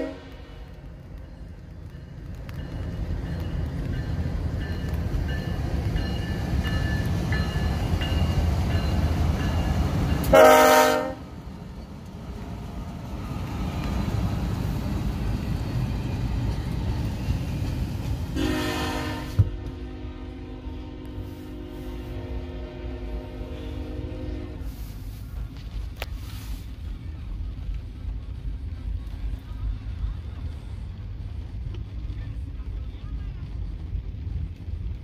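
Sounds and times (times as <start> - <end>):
train air horn blast: 0.0 - 0.8, 10.2 - 11.3, 18.4 - 25.1
diesel train rumbling: 0.0 - 35.0.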